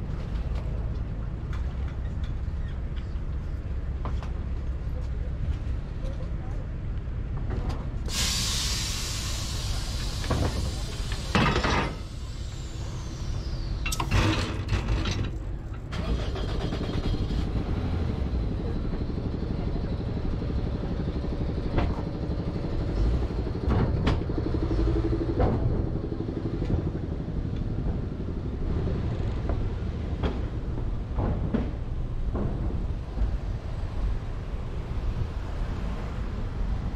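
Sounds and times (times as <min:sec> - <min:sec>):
car engine rumbling: 0:09.1 - 0:36.9.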